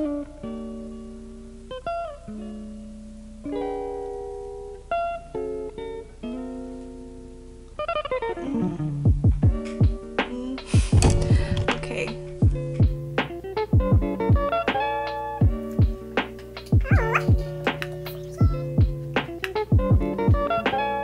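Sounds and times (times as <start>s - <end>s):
plucked string chords: 11.4s - 21.0s.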